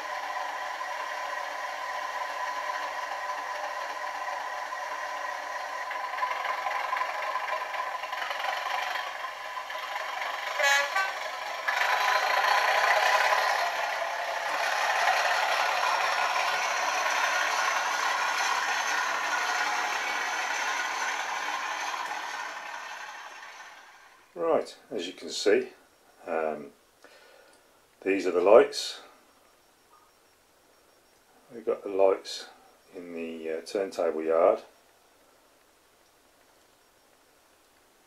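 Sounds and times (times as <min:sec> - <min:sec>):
model locomotive engine sound: 0:00.0 - 0:29.6, 0:31.0 - 0:38.0
model locomotive horn blast: 0:10.4 - 0:13.6.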